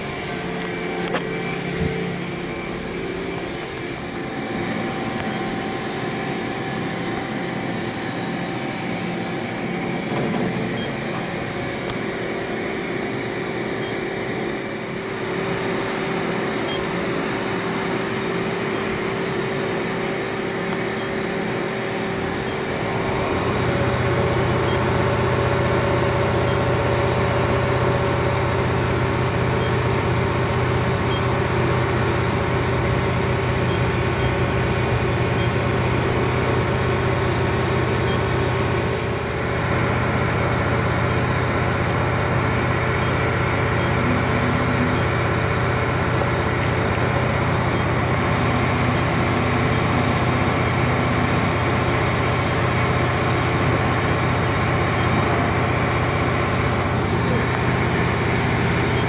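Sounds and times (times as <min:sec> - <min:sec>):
low hum: 0:00.0 - 0:17.5
machine whine: 0:00.0 - 0:59.0.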